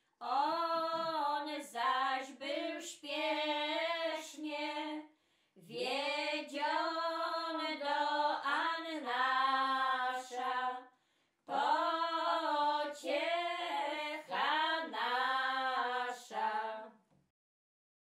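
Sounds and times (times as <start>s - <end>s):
women singing a hymn unaccompanied: 0.2s - 17.0s.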